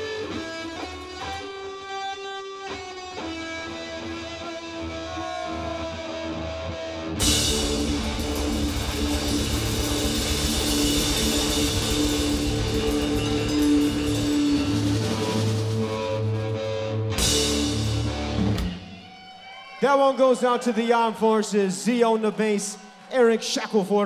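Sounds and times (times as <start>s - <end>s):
blues-rock band playing: 0.0s - 19.6s
crashing cymbals: 7.2s - 16.4s.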